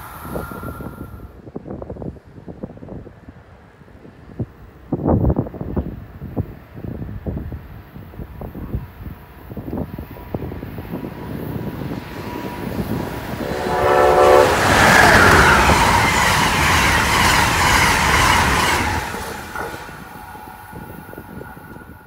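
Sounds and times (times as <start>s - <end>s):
train rushing past: 0.0s - 1.4s, 7.8s - 22.0s
train horn blast: 12.2s - 17.9s.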